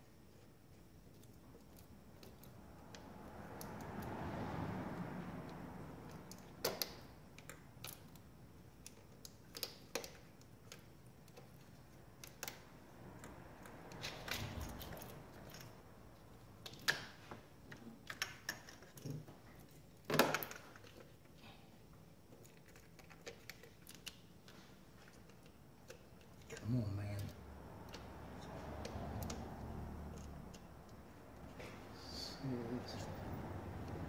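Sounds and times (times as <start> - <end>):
hand tools clicking and tapping: 8.8 - 15.7.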